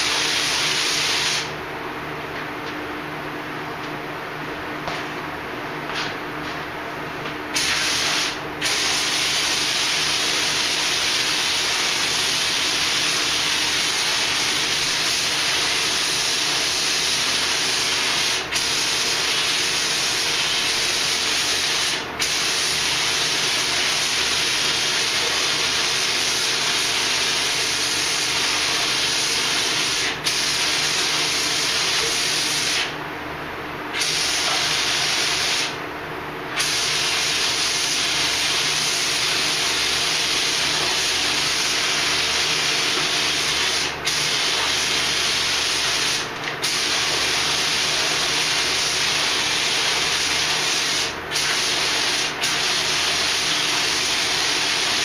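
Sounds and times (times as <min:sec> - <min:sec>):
spray gun hissing: 0:07.6 - 0:23.1.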